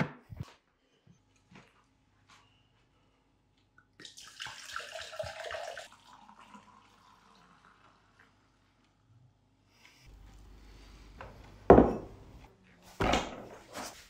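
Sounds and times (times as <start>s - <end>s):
wine pouring into a mug: 4.0s - 8.6s.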